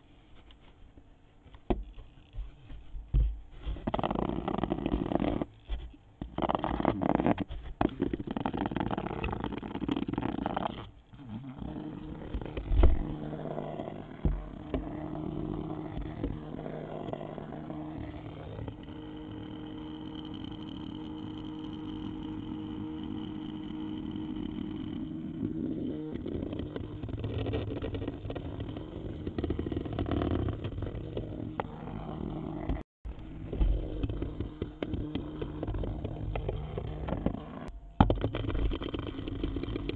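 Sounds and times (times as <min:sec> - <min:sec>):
low buzzing hum: 0:00.0 - 0:39.9
small knocks: 0:32.7 - 0:39.9.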